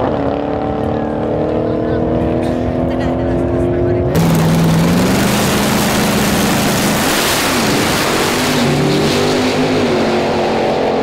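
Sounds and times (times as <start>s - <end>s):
drag racing cars accelerating: 0.0s - 11.0s.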